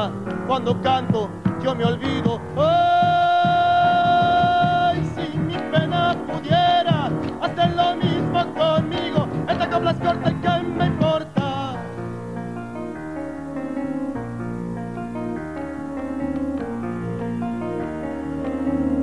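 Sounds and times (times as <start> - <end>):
band accompaniment: 0.0 - 11.9
man singing folk song: 0.0 - 11.9
acoustic guitar: 0.0 - 19.0.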